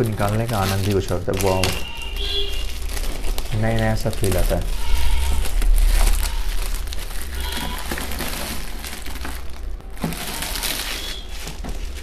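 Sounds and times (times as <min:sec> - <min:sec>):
plastic film crinkling: 0:00.0 - 0:12.0.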